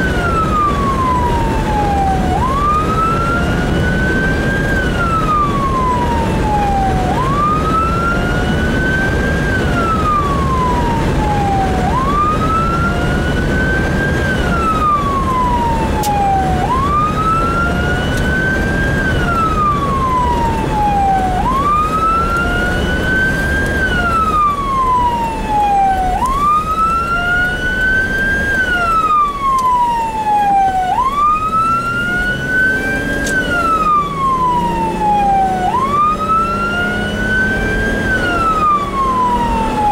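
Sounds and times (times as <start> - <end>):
engine and road rumble: 0.0 - 39.9
siren wailing: 0.0 - 39.9.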